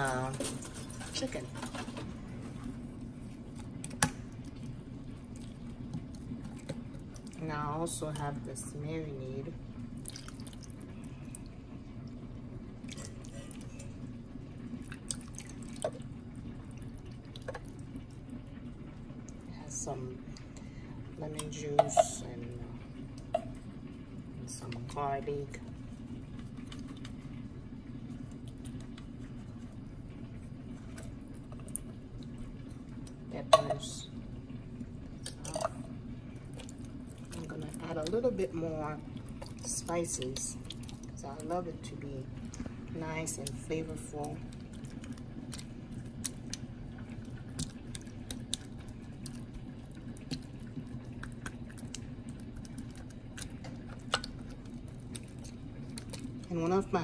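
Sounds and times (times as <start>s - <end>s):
steady low hum: 0.0s - 57.0s
wet squishing of meat: 3.2s - 7.4s, 9.9s - 12.2s, 12.8s - 13.9s, 14.7s - 18.3s, 36.4s - 38.2s, 39.0s - 41.5s, 43.4s - 56.5s.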